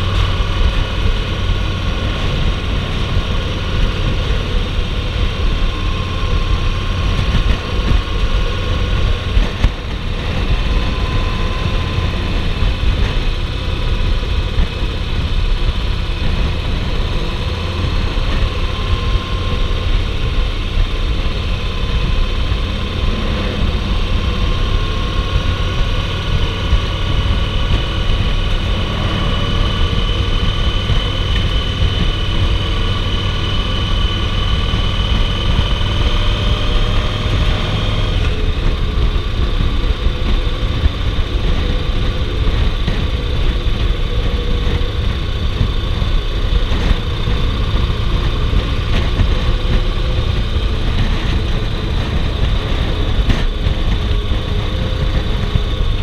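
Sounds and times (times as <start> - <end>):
motorcycle engine running: 0.0 - 56.0
steady high whine: 0.0 - 56.0
wind rush: 0.0 - 56.0.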